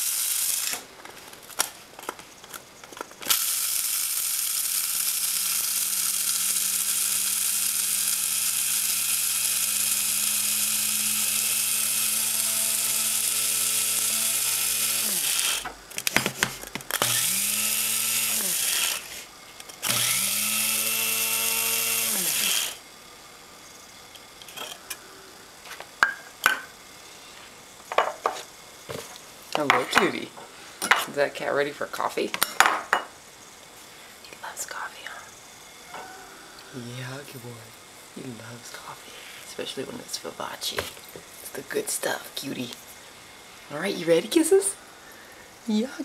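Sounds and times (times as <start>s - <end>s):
electric coffee grinder grinding: 0.0s - 30.3s, 38.3s - 46.0s.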